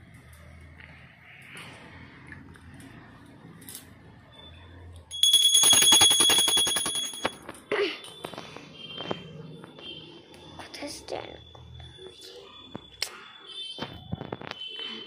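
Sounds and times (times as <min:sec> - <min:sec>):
hand bell ringing rapidly: 0:05.1 - 0:07.4.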